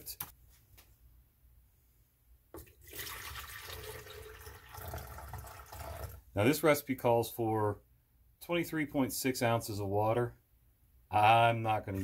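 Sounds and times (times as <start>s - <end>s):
water pouring into plastic pitcher: 2.6s - 6.2s.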